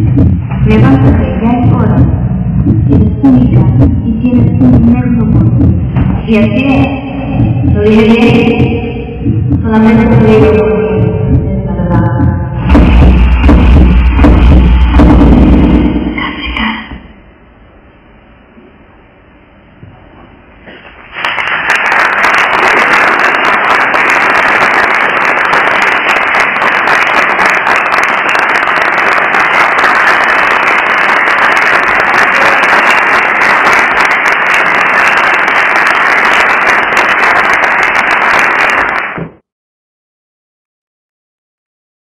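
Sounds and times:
audience applauding: 0:20.8 - 0:39.4.

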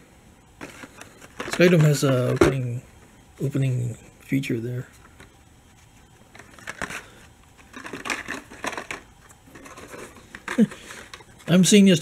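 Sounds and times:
cardboard and plastic packaging rustling: 0:00.6 - 0:02.8, 0:04.9 - 0:11.9.

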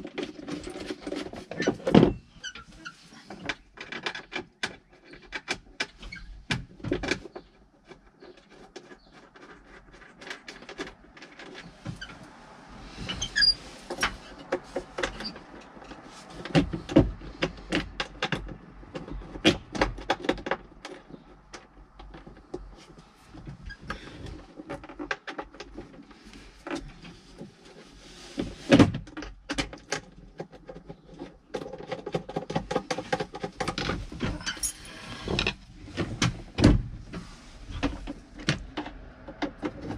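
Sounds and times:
plastic panel clicks and rattles: 0:03.3 - 0:12.0, 0:13.9 - 0:26.1, 0:28.7 - 0:34.4, 0:37.7 - 0:39.9.

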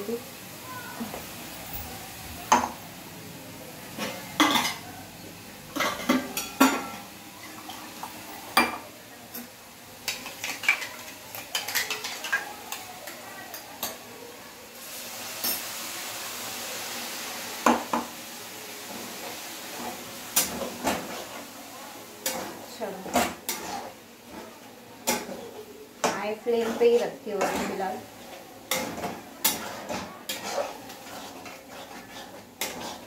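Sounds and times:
frying sizzle: 0:00.0 - 0:33.0
spoon clanking against pan: 0:05.7 - 0:07.1, 0:08.6 - 0:14.0, 0:25.0 - 0:27.8, 0:28.7 - 0:33.0.

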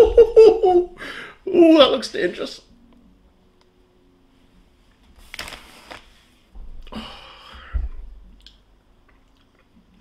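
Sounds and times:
person breathing sharply: 0:01.0 - 0:01.4, 0:06.9 - 0:07.9.

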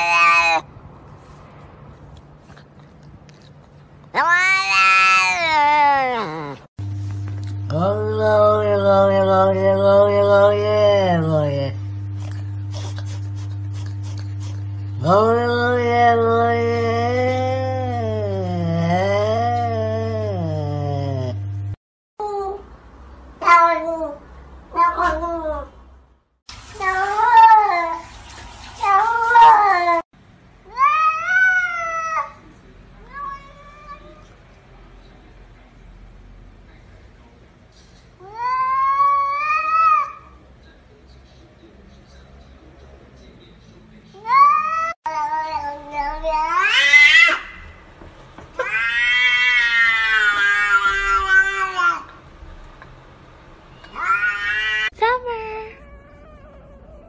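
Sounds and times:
cats meowing: 0:00.0 - 0:00.7, 0:04.1 - 0:06.7, 0:33.0 - 0:34.3, 0:48.6 - 0:52.1, 0:53.8 - 0:54.9.

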